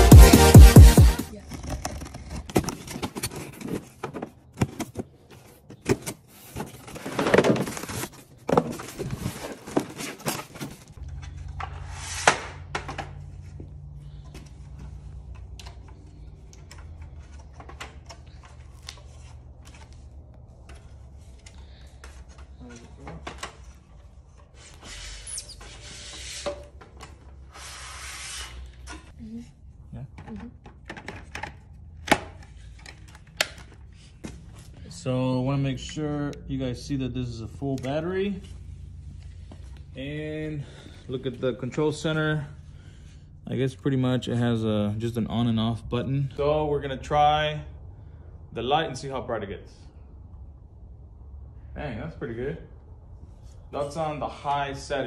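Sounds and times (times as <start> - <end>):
rustling cardboard packing: 1.2 - 12.7.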